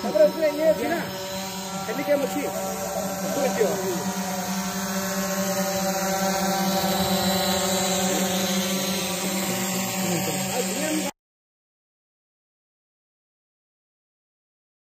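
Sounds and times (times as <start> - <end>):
camera drone hovering hum: 0.0 - 11.2.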